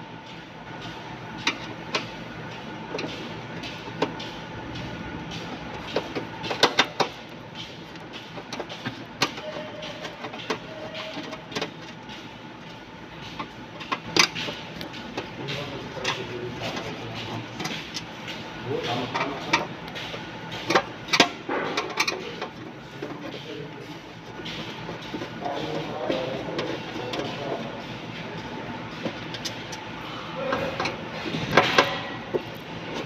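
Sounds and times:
sharp clicks and knocks: 1.4 - 27.8.

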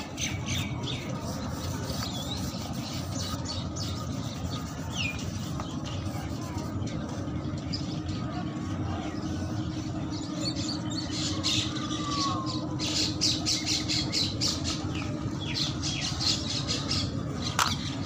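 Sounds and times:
crayon scratching on paper: 1.0 - 6.7.

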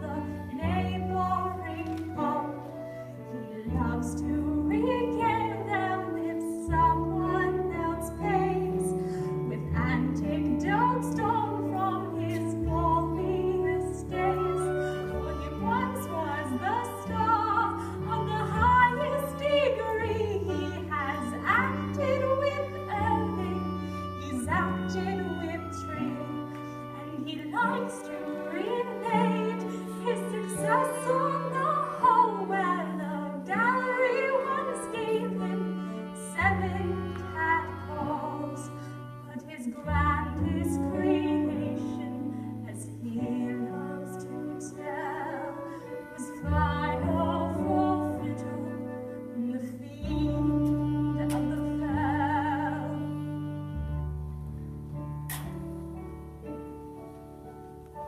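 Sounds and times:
orchestra playing slow music: 0.0 - 58.0.

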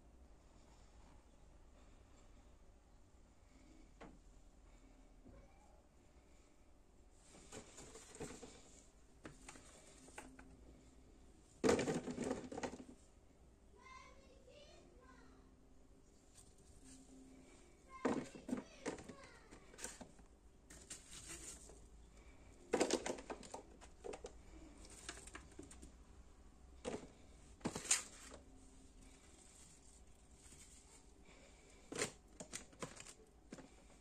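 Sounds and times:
plastic container clicking and crinkling: 22.7 - 25.9, 31.9 - 33.7.

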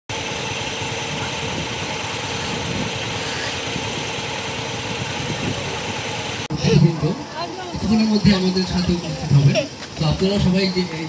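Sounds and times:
vehicle engine idling: 0.1 - 11.0.

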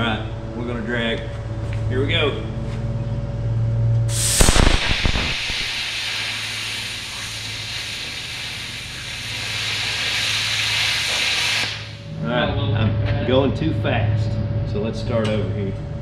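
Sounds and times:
hiss of arc and compressed air: 4.1 - 12.0
plasma cutter arc crackle: 4.1 - 12.0.

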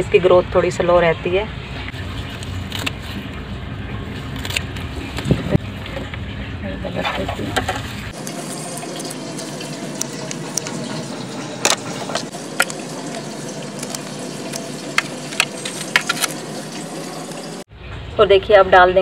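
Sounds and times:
scissors snipping stems: 2.6 - 3.0, 4.3 - 5.4.

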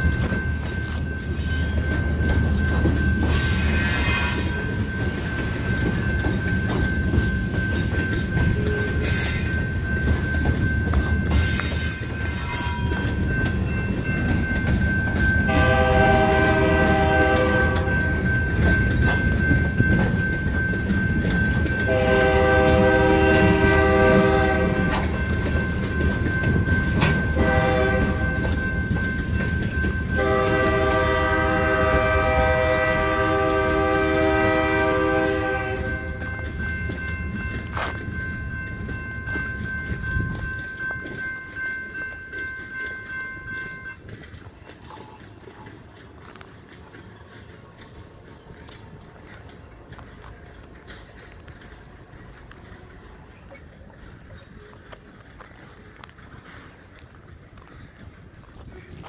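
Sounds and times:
freight cars rumbling and clattering: 0.0 - 59.0
locomotive air horn: 15.5 - 17.9, 21.9 - 25.0, 27.4 - 28.2, 30.2 - 36.2.

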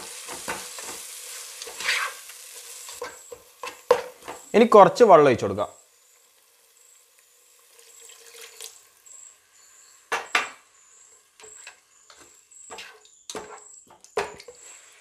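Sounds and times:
spatula scraping pan: 0.0 - 4.5, 10.9 - 15.0
water poured into pot: 7.1 - 9.0.

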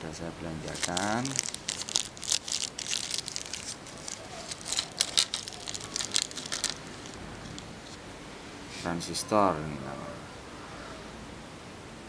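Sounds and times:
plastic bag crinkling: 0.6 - 8.0.

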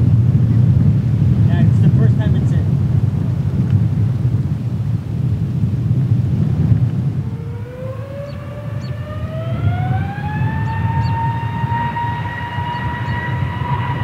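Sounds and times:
rising engine whine: 0.0 - 14.0
steady low rumble: 0.0 - 14.0
jet engines spooling up: 6.3 - 14.0.

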